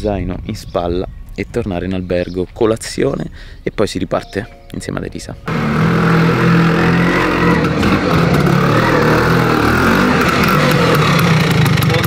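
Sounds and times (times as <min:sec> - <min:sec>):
scooter engine passing: 0:05.5 - 0:12.0.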